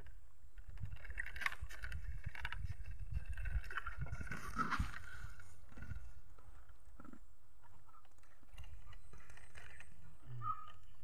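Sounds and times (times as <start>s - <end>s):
wind rumbling on microphone: 0.0s - 7.0s
bamboo walkway creaking: 0.0s - 11.0s.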